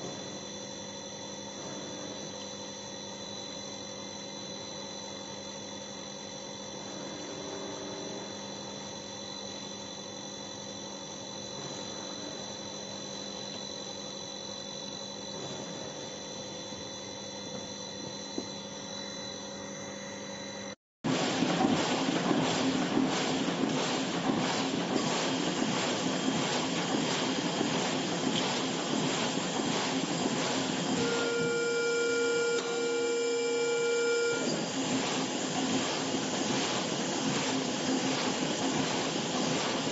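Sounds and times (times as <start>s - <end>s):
press running with clatter: 21.0s - 39.9s
stamping press hum: 21.1s - 39.9s.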